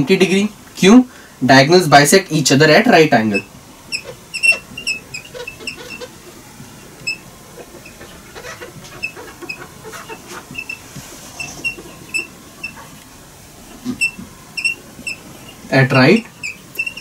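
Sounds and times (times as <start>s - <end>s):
marker squeaking on whiteboard: 3.3s - 6.2s, 7.0s - 13.0s, 13.8s - 17.0s.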